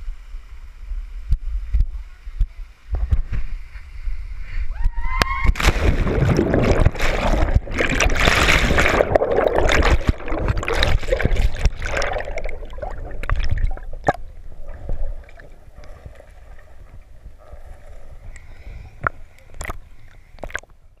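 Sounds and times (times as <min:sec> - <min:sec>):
sharp knocks underwater: 0:05.2 - 0:16.2
rushing churning water: 0:05.6 - 0:16.9
muffled underwater gurgling: 0:05.8 - 0:20.6.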